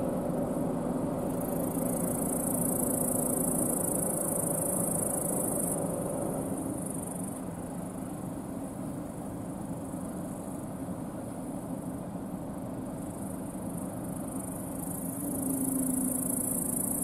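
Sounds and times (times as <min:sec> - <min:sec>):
insects chirring: 0:00.0 - 0:17.0
combine harvester engine rumble: 0:14.6 - 0:17.0.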